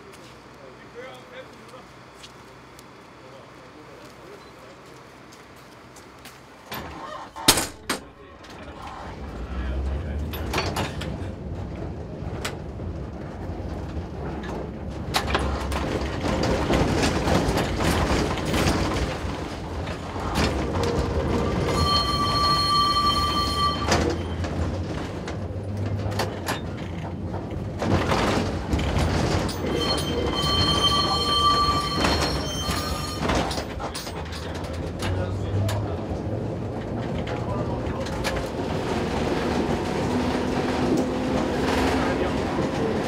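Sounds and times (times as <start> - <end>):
tram running rumble: 0.0 - 43.0
wheels clattering over track: 6.6 - 43.0
high wheel squeal: 20.0 - 25.0, 29.2 - 34.3.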